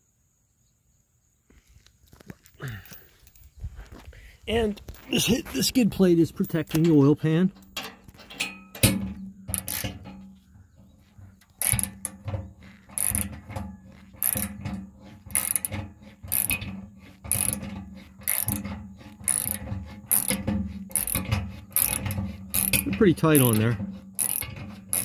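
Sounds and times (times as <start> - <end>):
socket ratchet clicking: 7.6 - 9.9, 11.6 - 12.2, 12.9 - 13.3, 14.2 - 14.6, 15.3 - 16.6, 17.3 - 17.6, 18.2 - 18.6, 19.2 - 23.6, 24.2 - 25.0.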